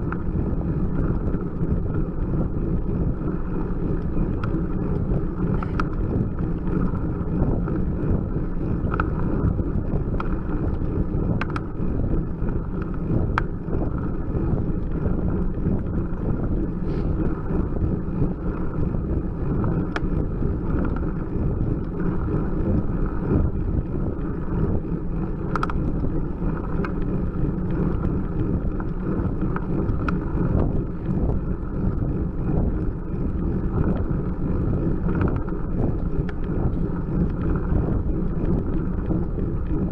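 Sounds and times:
wind on microphone: 0.0s - 39.9s
faint clicks: 4.0s - 6.2s, 8.8s - 9.2s, 10.2s - 11.7s, 19.7s - 21.2s, 25.5s - 26.0s, 35.1s - 37.8s.

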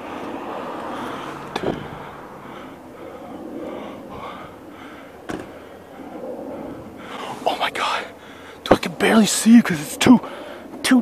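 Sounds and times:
person breathing hard: 0.7s - 7.5s, 8.1s - 8.6s, 10.2s - 10.7s.

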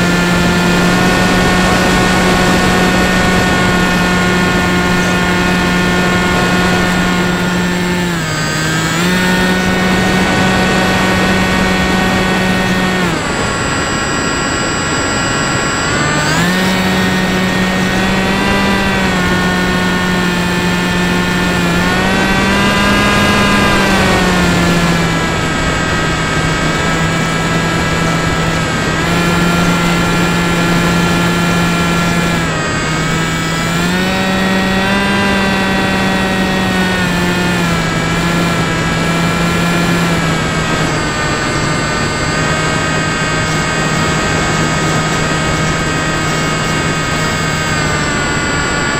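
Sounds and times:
model aircraft motor whining: 0.0s - 48.9s.

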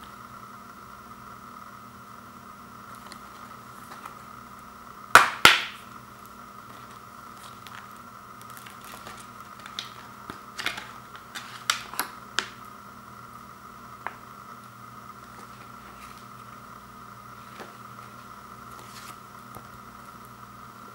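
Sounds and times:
paper insert handled: 6.7s - 12.6s.

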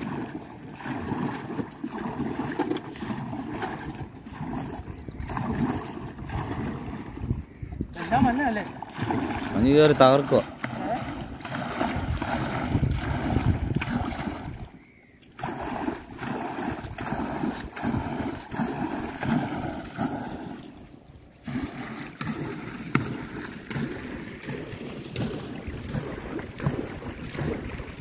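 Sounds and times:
paddle strokes in water: 0.0s - 28.0s
water washing along hull: 0.0s - 28.0s.

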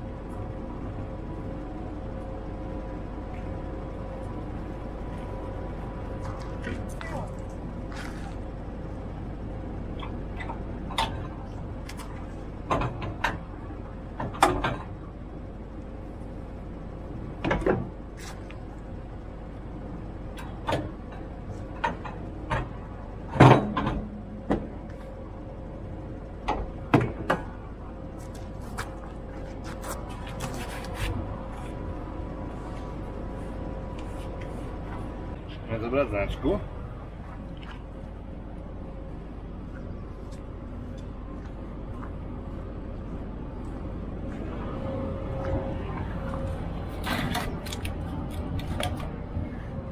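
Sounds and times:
steady hum: 0.0s - 49.9s.

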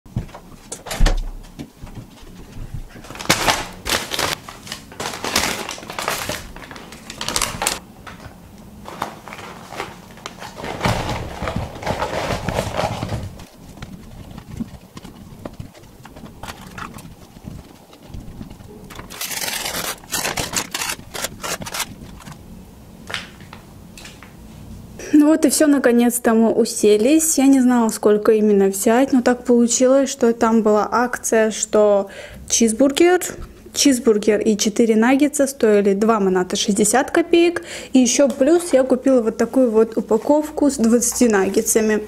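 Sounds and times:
paper box rustling and crinkling: 2.9s - 22.4s
items knocking on wood: 9.8s - 19.1s.

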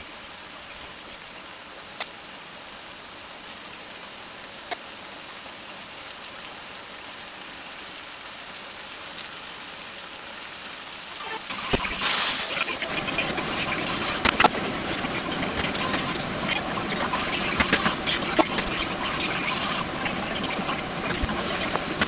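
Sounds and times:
onions sizzling in a frying pan: 11.0s - 22.0s.

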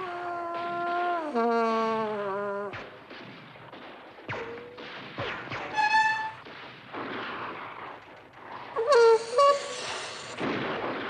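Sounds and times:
distant gunfire: 2.7s - 11.0s.

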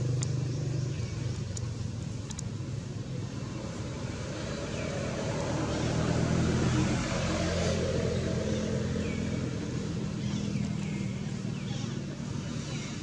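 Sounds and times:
vehicle engine passing: 0.0s - 13.0s.

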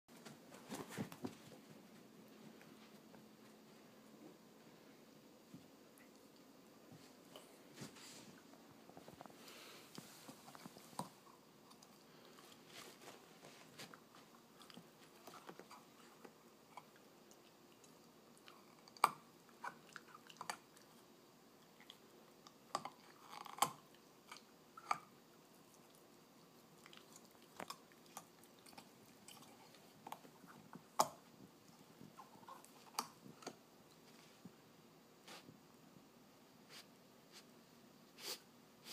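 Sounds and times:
puppy gnawing on chew toy: 10.3s - 21.0s, 21.6s - 33.6s.

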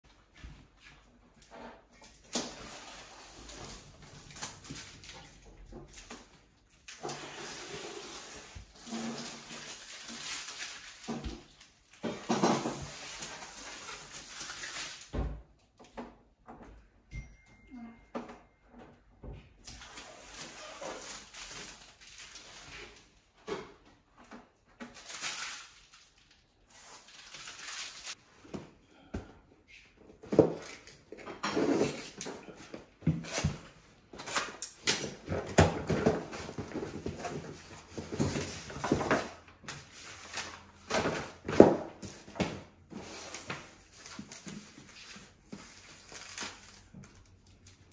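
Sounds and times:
plastic film rustling and crinkling: 1.0s - 15.2s, 19.7s - 23.3s, 24.2s - 28.2s, 30.3s - 47.9s
sharp crackles of plastic film: 1.8s - 15.1s, 19.6s - 23.2s, 24.7s - 28.2s, 43.0s - 47.9s
rustling and scraping handling noises: 29.6s - 47.9s.

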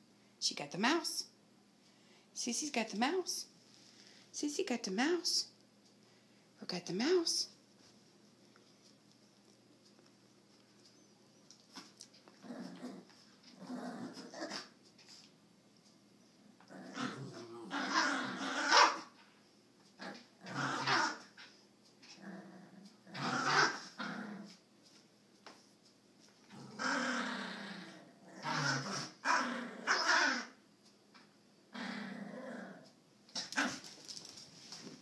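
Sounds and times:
small dogs growling: 11.8s - 14.8s, 16.6s - 19.1s, 19.9s - 24.6s, 26.4s - 30.6s, 31.7s - 34.0s
small dogs barking: 16.9s - 19.1s, 20.5s - 21.3s, 23.2s - 24.0s, 28.4s - 30.6s.

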